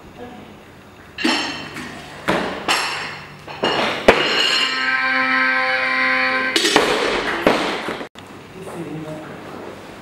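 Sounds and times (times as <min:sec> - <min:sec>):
barbell knocking and clinking: 0:02.7 - 0:04.8
steady buzzer tone: 0:04.2 - 0:07.5.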